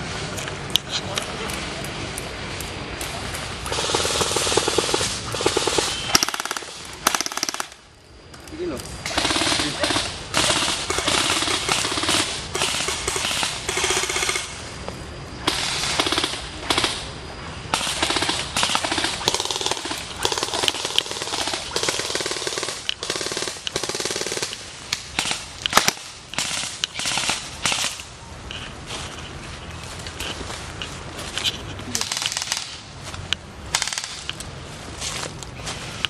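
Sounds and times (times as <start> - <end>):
airsoft rifles firing: 3.6 - 7.8, 9.0 - 14.6, 15.4 - 28.1, 31.9 - 32.9, 33.7 - 34.3.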